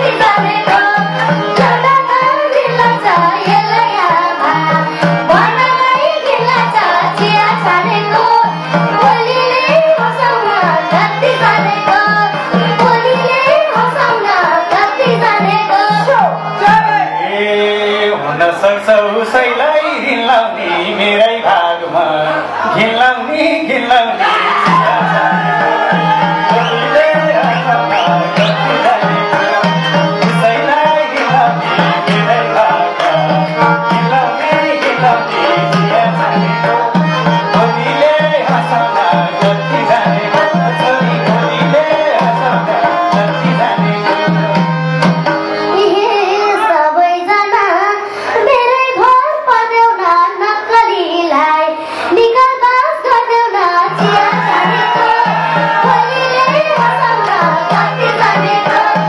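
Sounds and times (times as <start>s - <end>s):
hand drum rhythm: 24.4s - 45.6s, 53.8s - 59.0s.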